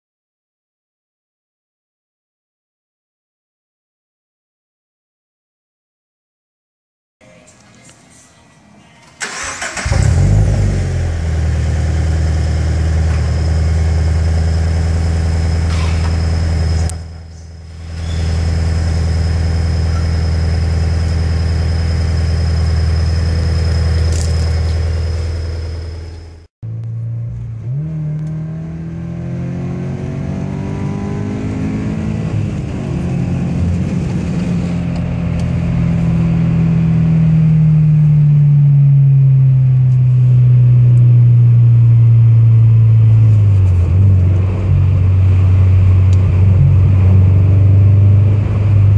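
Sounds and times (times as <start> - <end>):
car engine cranking: 9.2 - 11.4, 17.8 - 26.2
car engine idling: 9.2 - 27.7
car engine accelerating: 9.2 - 48.9.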